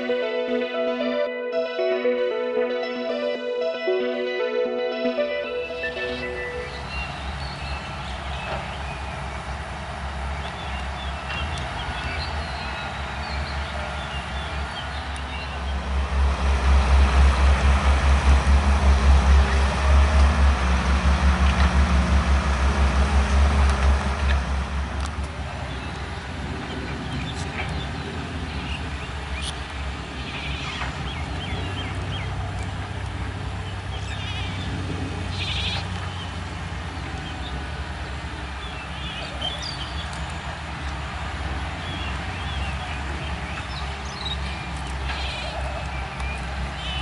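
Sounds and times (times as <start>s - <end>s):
excavator diesel engine throbbing: 0.0s - 27.2s
distant excavators humming: 5.9s - 47.0s.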